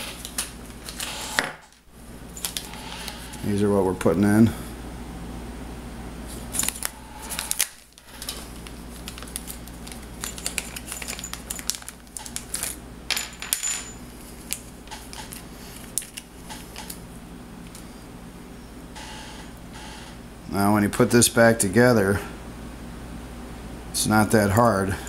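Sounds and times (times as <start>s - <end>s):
small metal parts clinking: 9.1s - 14.6s.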